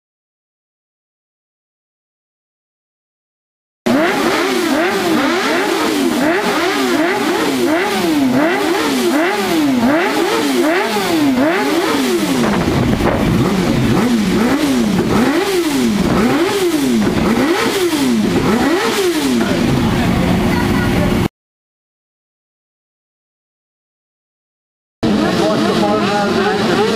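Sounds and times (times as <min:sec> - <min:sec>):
motorcycle engines revving: 0:03.9 - 0:21.3, 0:25.0 - 0:26.9.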